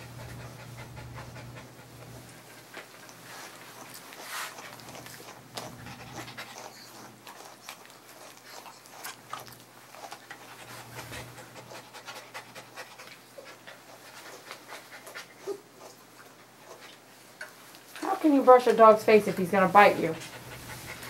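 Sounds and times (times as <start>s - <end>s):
dog panting: 0.0s - 21.0s
brush strokes through fur: 3.1s - 4.8s.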